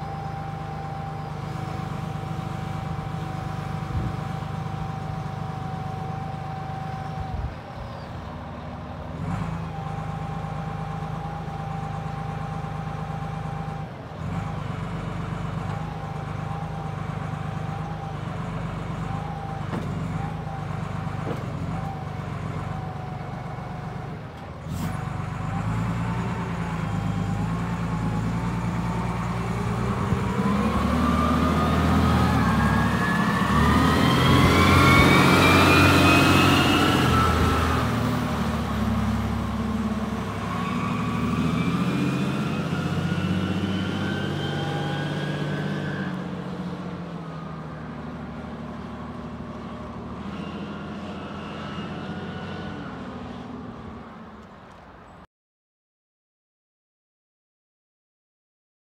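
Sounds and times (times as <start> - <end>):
forklift diesel engine running: 0.0 - 55.0.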